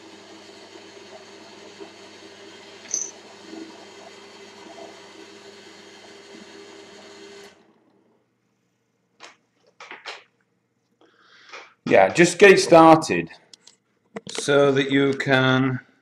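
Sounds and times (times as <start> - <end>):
drill press running: 0.0 - 8.0.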